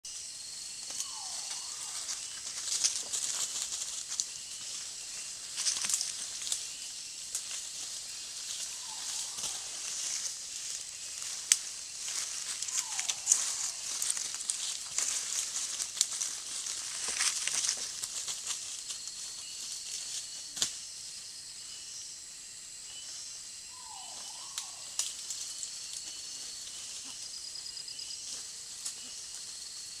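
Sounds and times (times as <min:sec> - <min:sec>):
leaves and twigs rustling: 0:00.1 - 0:21.1, 0:23.0 - 0:30.0
animal calls falling in pitch: 0:00.9 - 0:03.1, 0:08.6 - 0:10.3, 0:12.6 - 0:14.3.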